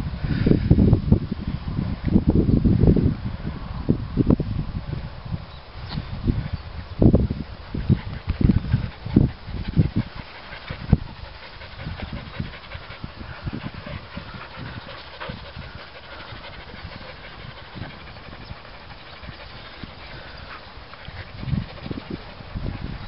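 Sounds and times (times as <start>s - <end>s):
dogs panting: 7.4s - 23.0s.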